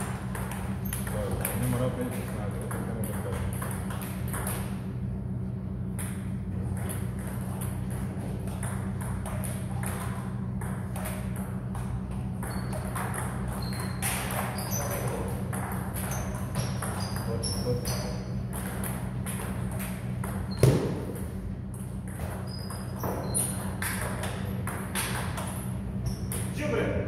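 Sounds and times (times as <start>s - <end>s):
steady low hum: 0.0s - 27.0s
short high squeaks: 13.5s - 15.2s, 16.0s - 18.3s, 22.4s - 23.8s, 26.0s - 26.5s.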